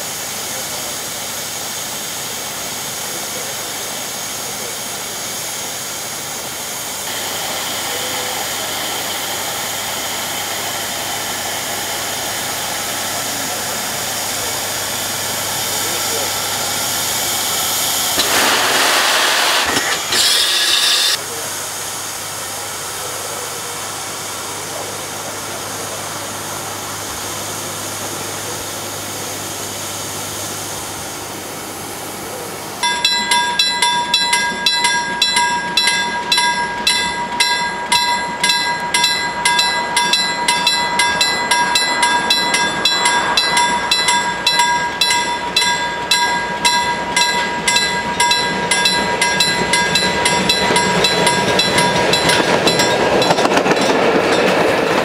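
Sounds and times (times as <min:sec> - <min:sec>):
steam locomotive hissing steam: 0:00.0 - 0:55.0
level-crossing warning bell ringing: 0:20.1 - 0:21.2, 0:32.8 - 0:54.7.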